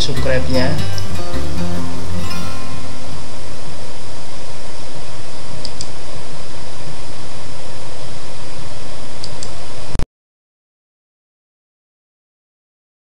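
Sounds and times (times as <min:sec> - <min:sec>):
broad noise hiss: 0:00.0 - 0:10.0.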